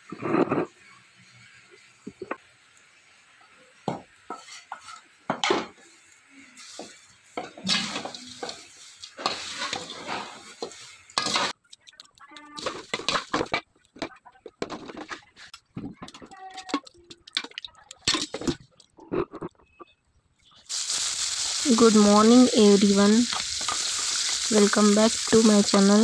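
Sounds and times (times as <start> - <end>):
spatula scraping rice flakes in pan: 7.7 - 11.6.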